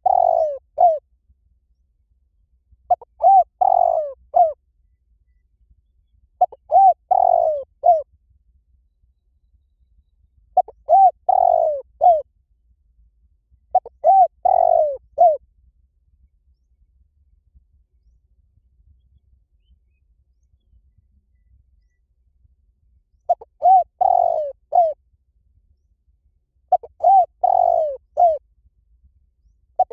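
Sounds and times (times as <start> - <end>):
dove cooing: 0.0 - 1.0, 2.9 - 4.6, 6.4 - 8.1, 10.6 - 12.2, 13.7 - 15.4, 23.3 - 25.0, 26.7 - 28.4.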